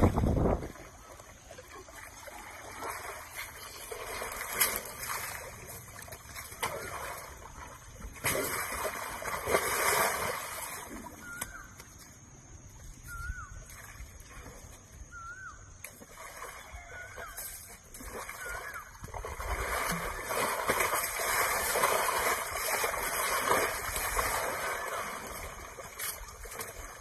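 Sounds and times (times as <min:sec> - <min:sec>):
elephants squelching in mud: 0:01.8 - 0:11.5, 0:16.1 - 0:27.0.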